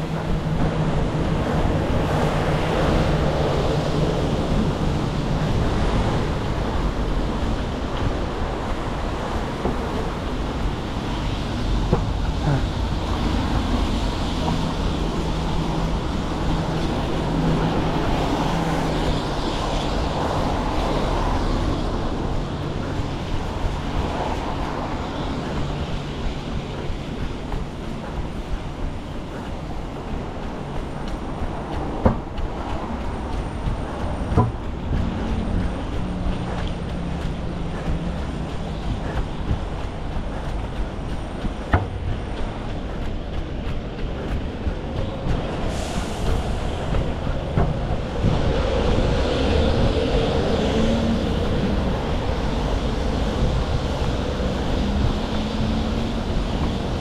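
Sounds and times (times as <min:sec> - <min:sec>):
constant low rumble: 0:00.0 - 0:57.0
passing vehicle engine hum: 0:00.0 - 0:57.0
road traffic: 0:00.0 - 0:57.0
sharp knocks: 0:34.2 - 0:34.7.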